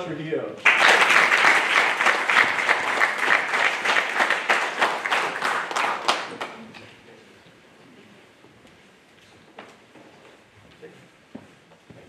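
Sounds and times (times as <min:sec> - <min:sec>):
people clapping: 0:00.6 - 0:06.9.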